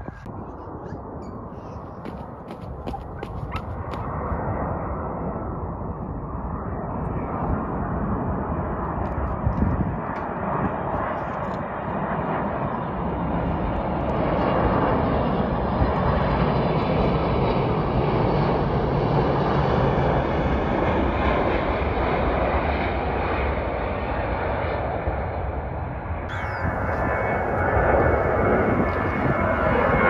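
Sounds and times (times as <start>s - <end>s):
jet airliner engines: 0.0s - 30.0s.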